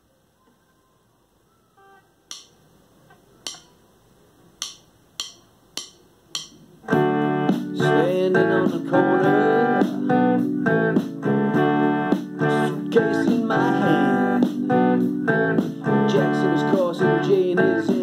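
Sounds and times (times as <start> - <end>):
sharp clicks at steady beat: 2.3 - 2.6, 3.4 - 3.7, 4.6 - 6.6
electric guitar through amplifier: 6.7 - 18.0.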